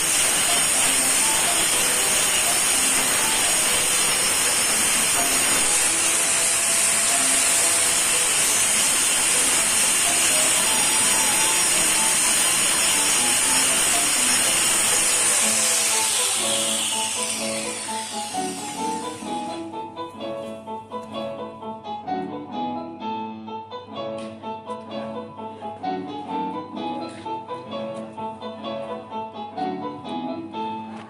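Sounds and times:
angle grinder grinding wood: 0:00.0 - 0:19.9.

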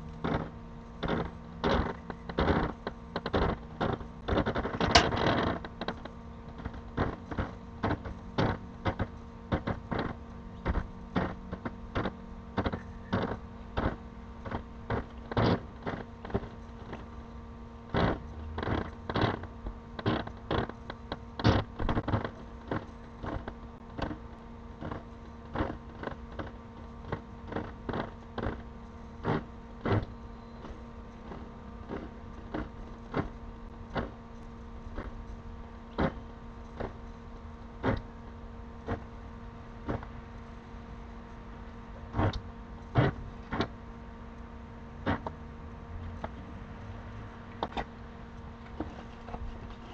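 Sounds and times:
steady hum: 0:00.0 - 0:49.9
irregular clicks and knocks: 0:00.1 - 0:17.1, 0:17.9 - 0:28.6.

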